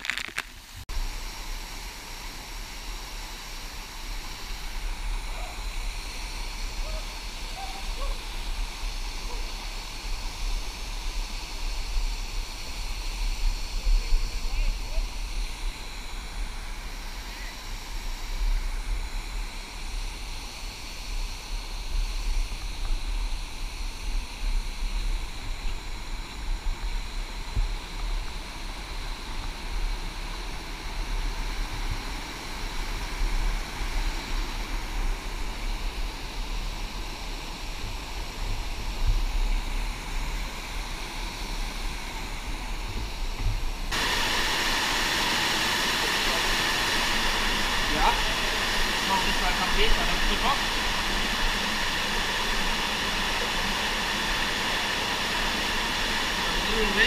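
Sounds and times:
running water rushing: 39.4 - 57.0.

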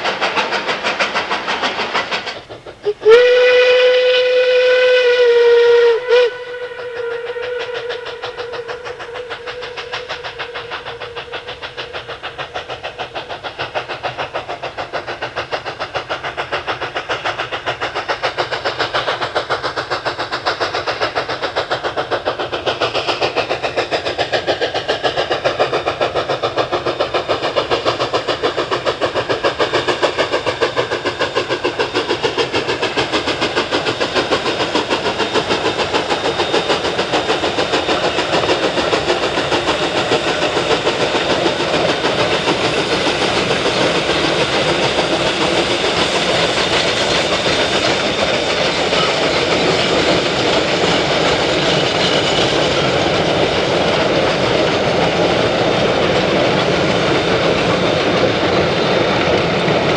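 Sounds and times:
steam locomotive chuffing: 0.0 - 59.9.

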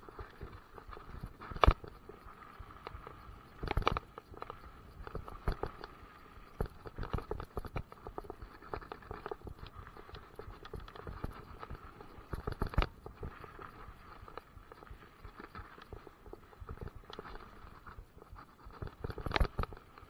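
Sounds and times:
bike rattling and knocking: 3.6 - 5.9, 6.5 - 20.0.

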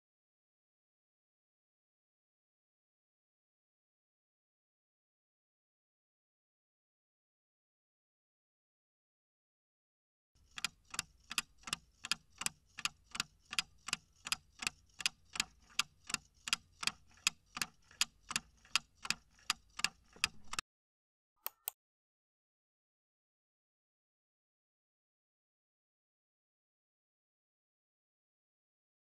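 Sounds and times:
clock ticking evenly: 10.4 - 20.6.

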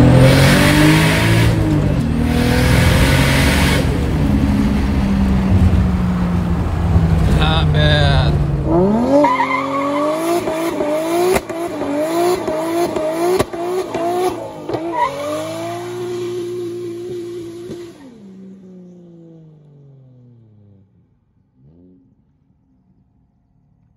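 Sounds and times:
car engine revving hard: 0.0 - 5.8, 6.9 - 18.2.

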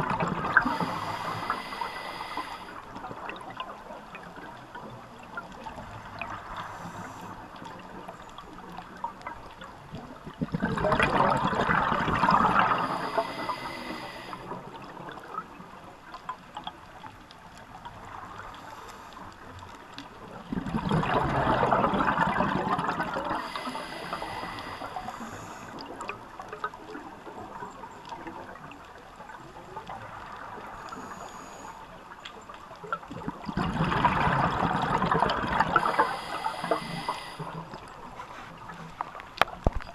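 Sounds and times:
diver exhaling through regulator bubbles: 10.4 - 14.4, 20.5 - 25.3, 33.5 - 37.4.

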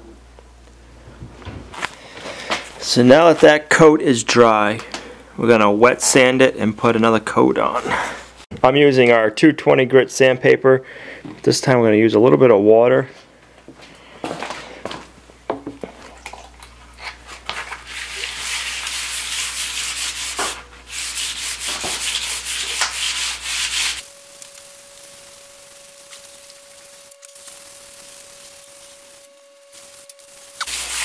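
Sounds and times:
faint steady hum: 0.0 - 8.4, 19.1 - 31.0
sandpaper rasping on concrete: 17.8 - 24.1, 26.3 - 31.0.

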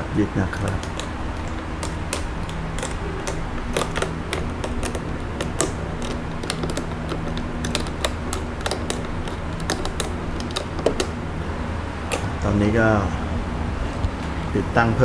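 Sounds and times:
spanner and bolts clicking: 0.5 - 11.5.

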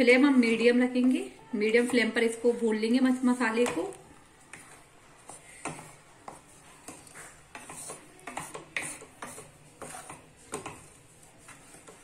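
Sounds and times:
wooden spoon scraping pan: 4.4 - 12.0.

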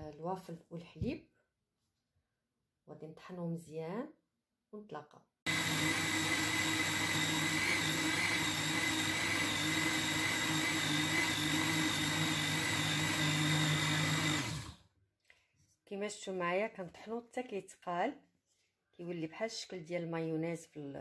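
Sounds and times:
blender motor hum and whine: 5.5 - 14.8.

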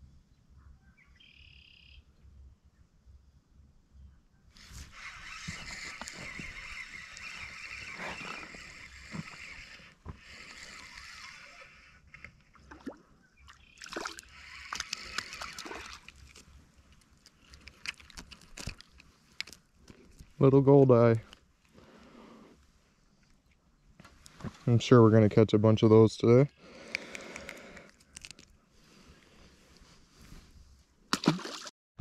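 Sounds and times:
fishing reel whirring: 4.6 - 12.6, 13.8 - 16.4
fish splashing: 12.5 - 16.4, 31.1 - 31.7.

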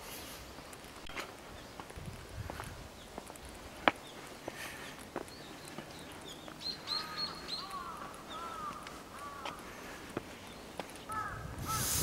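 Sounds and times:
crows cawing: 6.8 - 10.0, 11.1 - 12.0
light ticks: 7.2 - 11.1.

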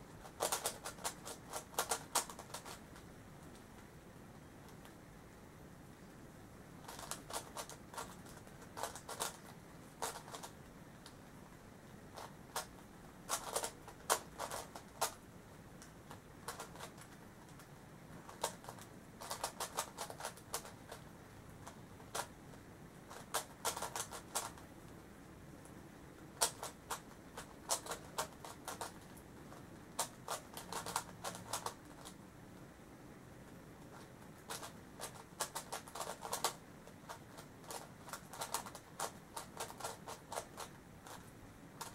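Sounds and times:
plastic puzzle clicking: 0.2 - 2.8, 6.9 - 11.2, 13.3 - 15.2, 15.8 - 17.7, 18.3 - 21.0, 23.1 - 24.6, 26.4 - 32.2, 34.0 - 41.9.

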